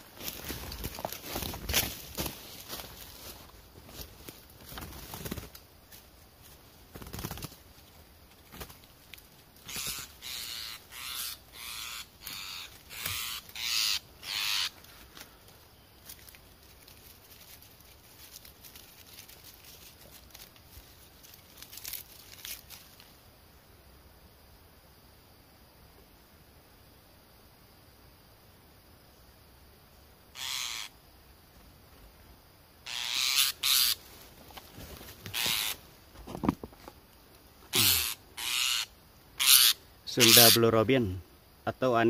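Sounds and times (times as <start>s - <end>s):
hands rustling and crackling: 14.8s - 23.1s.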